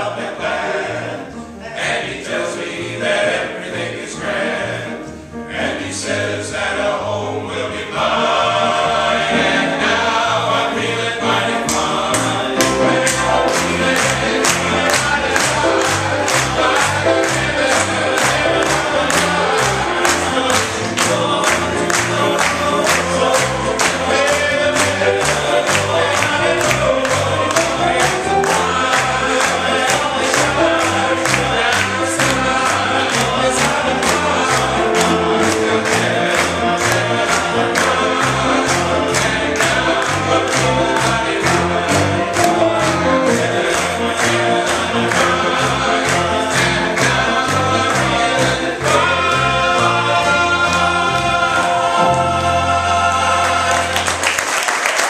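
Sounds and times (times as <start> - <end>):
male vocal ensemble singing gospel: 0.0 - 54.4
hand clapping: 11.7 - 49.4, 53.7 - 55.0.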